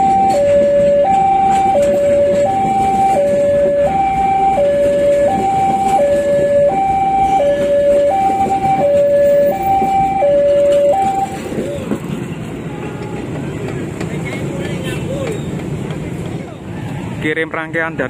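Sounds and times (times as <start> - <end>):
two-tone level crossing alarm: 0.0 - 11.5
railway carriages rumbling past: 0.0 - 18.0.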